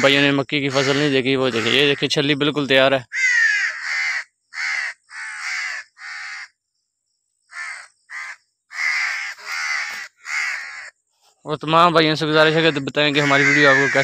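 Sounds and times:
crow cawing: 0:00.6 - 0:02.1, 0:03.1 - 0:06.6, 0:07.4 - 0:11.1, 0:12.4 - 0:14.0.

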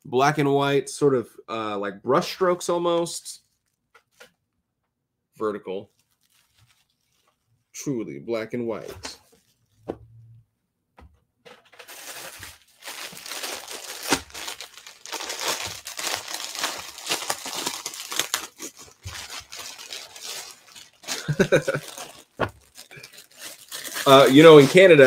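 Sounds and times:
plastic bag crinkling: 0:05.9 - 0:07.4, 0:11.6 - 0:25.0.

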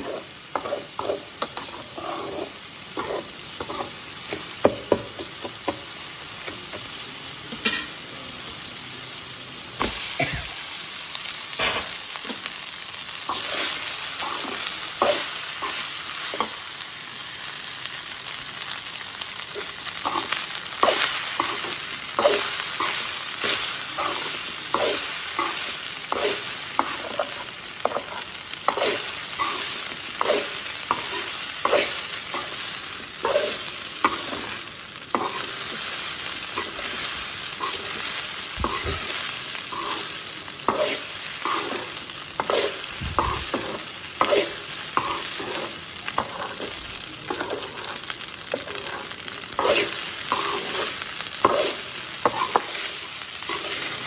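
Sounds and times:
metal spoon scraping a pan: 0:00.0 - 0:04.4, 0:11.6 - 0:12.0, 0:13.3 - 0:16.6, 0:19.6 - 0:54.0
frying sizzle: 0:00.0 - 0:54.0.

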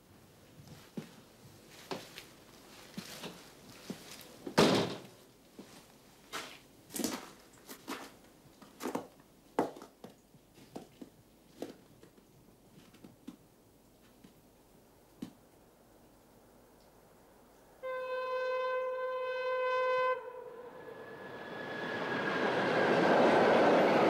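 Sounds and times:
footsteps on porch and snow: 0:00.4 - 0:14.4
door shutting with heavy thud: 0:04.6 - 0:05.0.

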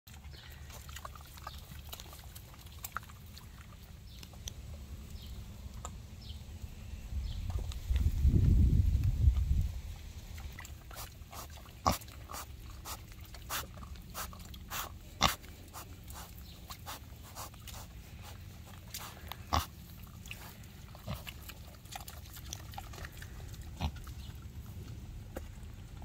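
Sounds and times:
pigs chewing: 0:00.1 - 0:06.7, 0:08.9 - 0:26.0.

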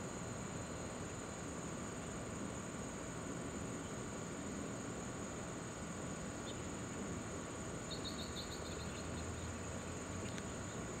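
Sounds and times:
high-pitched insect buzz: 0:07.8 - 0:09.2
bird chirping: 0:07.8 - 0:09.6.

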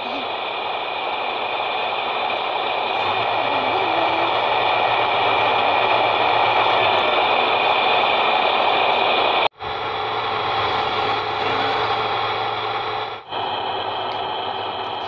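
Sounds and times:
toy truck motor whine: 0:02.8 - 0:07.4, 0:09.6 - 0:15.0.

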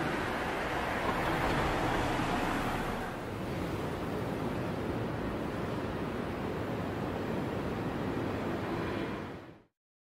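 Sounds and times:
street ambience rumble and hiss: 0:00.0 - 0:09.7.

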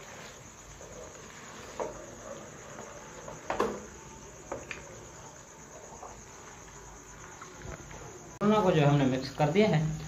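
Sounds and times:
spatula scraping and knocking pan: 0:00.0 - 0:04.9.

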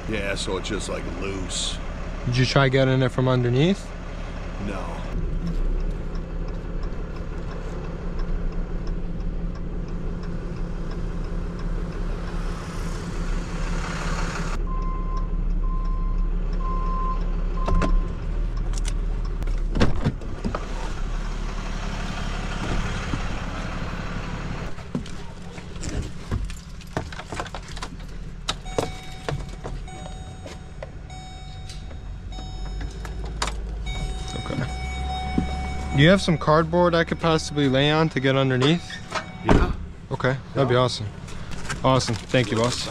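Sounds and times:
truck engine running: 0:00.0 - 0:42.9
short beeps: 0:28.7 - 0:39.8.

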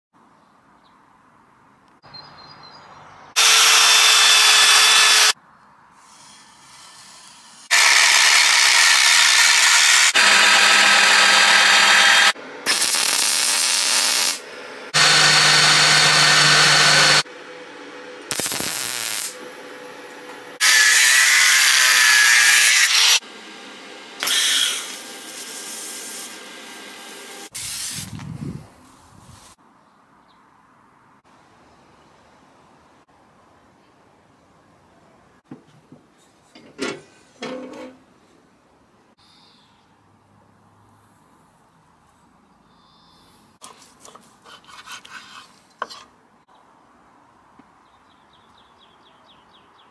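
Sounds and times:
power tools working steel: 0:03.4 - 0:05.4, 0:06.2 - 0:27.5.

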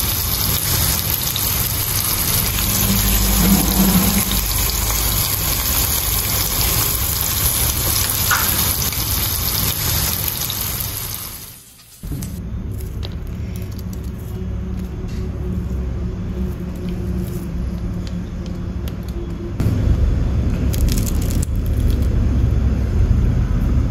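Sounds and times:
fish sizzling in hot oil: 0:00.0 - 0:12.0
low steady hum: 0:00.2 - 0:08.6, 0:12.0 - 0:23.9.

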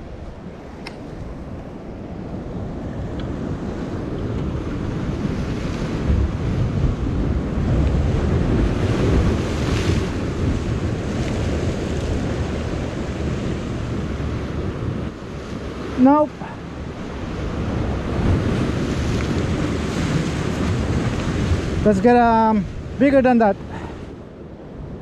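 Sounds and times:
wind buffeting microphone: 0:00.0 - 0:25.0
surf breaking against boulders: 0:04.2 - 0:24.1.

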